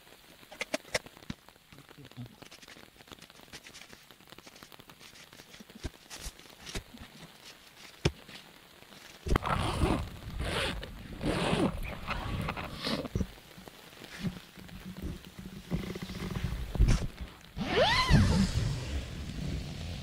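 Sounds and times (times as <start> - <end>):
camping gear rustling and knocking: 2.4 - 17.5
zipper pulled quickly: 9.3 - 13.1.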